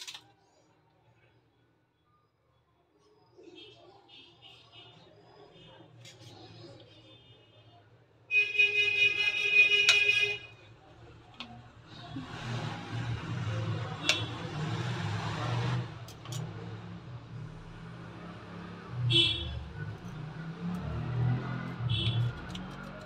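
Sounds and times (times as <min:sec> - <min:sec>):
vehicle horn: 0:08.3 - 0:10.5, 0:19.1 - 0:19.7, 0:21.8 - 0:22.5
vehicle rushing past: 0:16.6 - 0:22.0.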